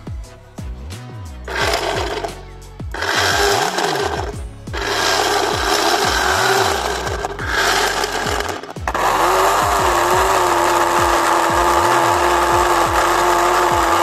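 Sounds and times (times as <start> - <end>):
background music with low notes: 0.0 - 14.0
water pump whirring: 3.0 - 14.0.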